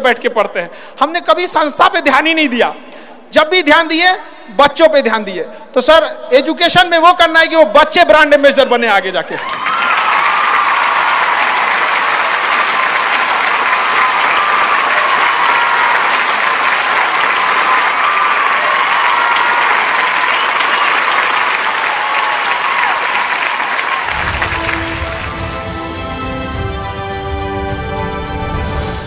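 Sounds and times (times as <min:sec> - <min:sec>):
audience applauding: 0:09.4 - 0:28.1.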